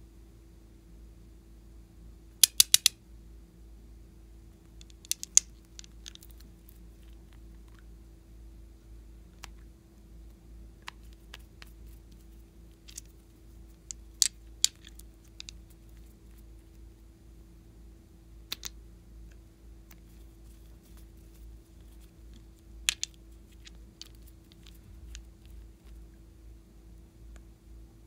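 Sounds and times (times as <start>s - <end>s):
faint steady hum: 0.0s - 28.0s
plastic bottle caps clicking: 2.4s - 2.9s.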